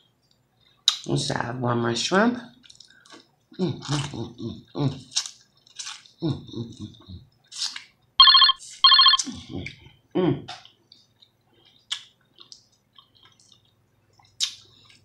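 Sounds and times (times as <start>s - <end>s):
person chewing and smacking: 0.6s - 1.1s, 2.6s - 8.0s, 10.5s - 15.0s
phone ringtone: 8.2s - 9.2s.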